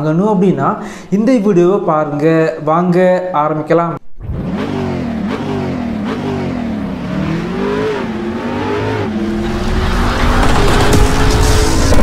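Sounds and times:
car engine revving: 4.1 - 12.0.

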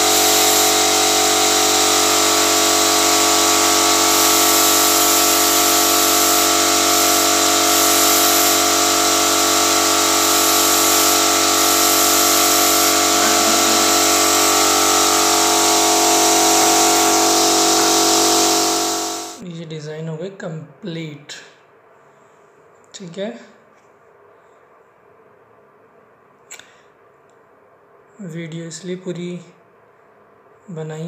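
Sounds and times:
air compressor motor running: 0.0 - 19.4
paint spray gun hissing: 0.0 - 19.4.

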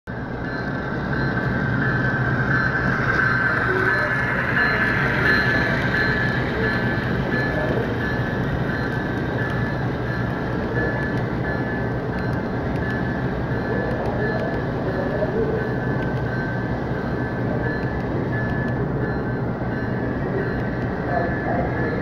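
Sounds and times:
high whine: 0.1 - 22.0
model train rumbling: 0.1 - 22.0.

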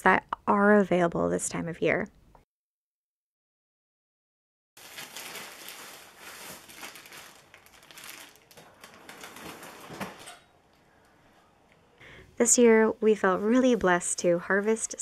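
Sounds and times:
plastic bag crinkling: 4.8 - 10.3.

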